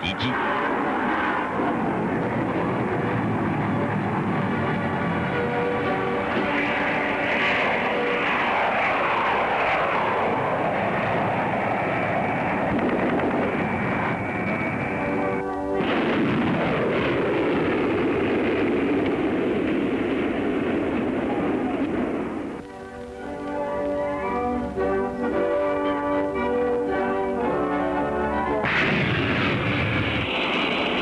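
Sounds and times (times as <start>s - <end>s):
documentary background music: 0.0s - 10.3s, 22.5s - 31.0s
jet aircraft passing: 0.0s - 31.0s.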